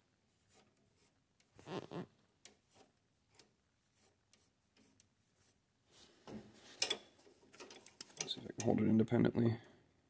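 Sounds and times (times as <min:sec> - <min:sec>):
faint clicks of control linkage: 0:06.8 - 0:08.8.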